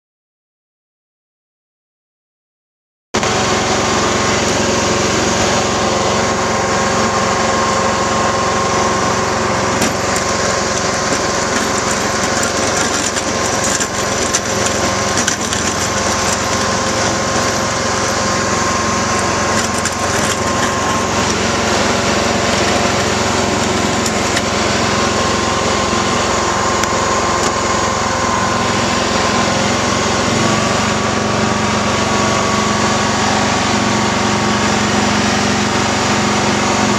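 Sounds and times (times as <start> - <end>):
garden tractor engine running: 3.2 - 36.9
rough rattling noise: 9.6 - 21.5.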